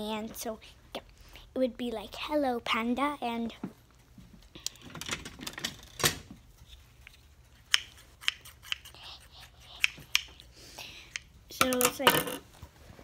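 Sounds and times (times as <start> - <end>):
scissors snipping: 7.6 - 10.4.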